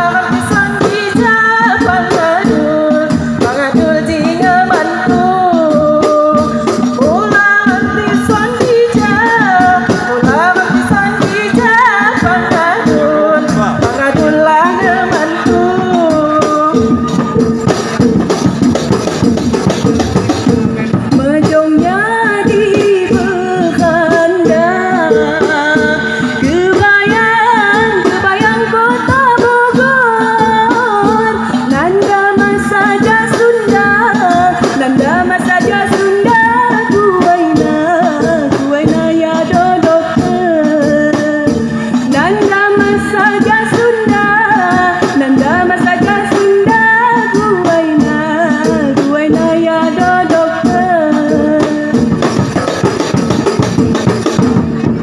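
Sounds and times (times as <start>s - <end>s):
person singing: 0.0s - 18.0s, 20.7s - 52.2s
hand percussion beat: 0.0s - 55.0s.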